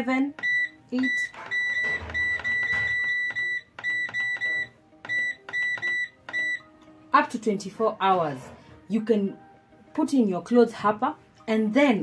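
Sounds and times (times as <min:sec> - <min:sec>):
washing machine panel beeps: 0:00.4 - 0:06.7.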